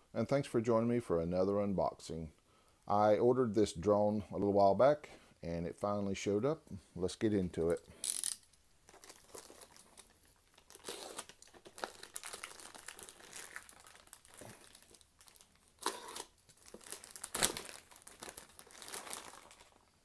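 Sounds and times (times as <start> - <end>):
plastic mailer crinkling and tearing: 7.6 - 19.8.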